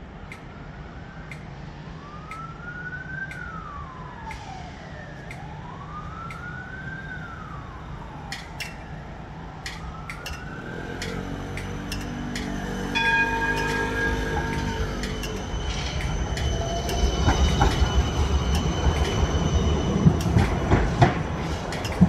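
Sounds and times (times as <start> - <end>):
emergency vehicle siren wailing: 0.0 - 22.0
low rumble of tram: 0.0 - 22.0
sharp clicks: 3.3 - 3.5, 5.2 - 5.5, 8.3 - 8.8, 9.6 - 12.6, 21.6 - 22.0.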